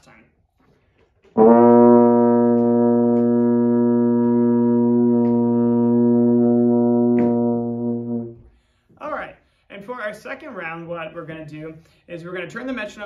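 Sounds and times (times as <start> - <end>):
euphonium low held note: 1.5 - 8.4.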